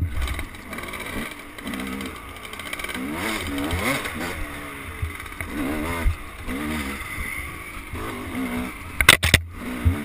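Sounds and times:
dirt bike engine revving: 0.0 - 10.0.

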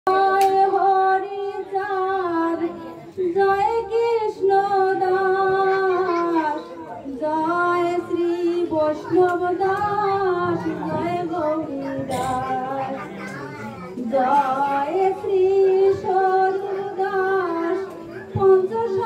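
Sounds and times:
woman singing a hymn: 0.1 - 13.0, 14.0 - 19.0.

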